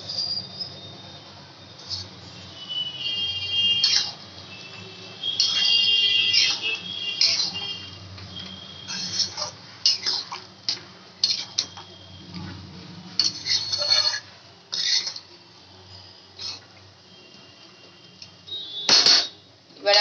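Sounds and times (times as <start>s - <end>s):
spatula scraping metal pan: 3.2s - 4.2s, 5.2s - 7.9s, 8.8s - 11.8s, 13.2s - 15.2s.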